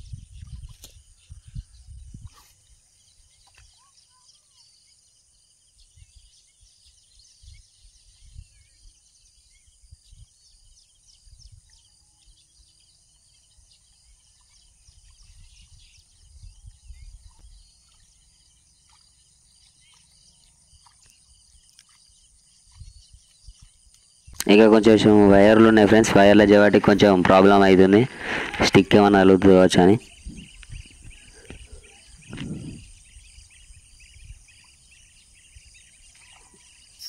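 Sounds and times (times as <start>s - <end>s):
wind rumbling on microphone: 0.0s - 3.7s, 5.8s - 12.7s, 14.6s - 18.2s, 22.5s - 36.7s
bird chirps: 0.0s - 37.0s
insect hum: 0.0s - 37.0s.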